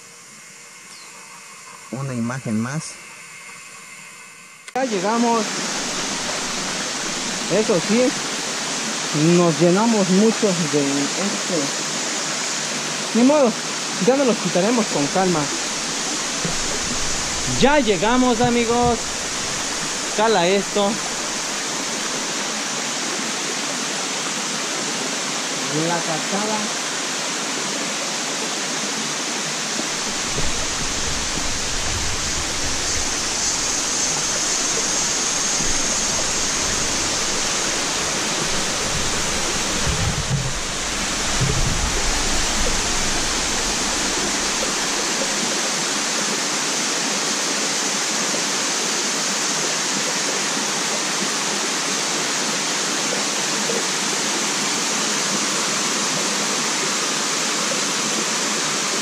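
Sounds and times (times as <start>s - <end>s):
waterfall and stream rushing: 4.7s - 59.0s
low microphone rumble: 29.9s - 45.4s.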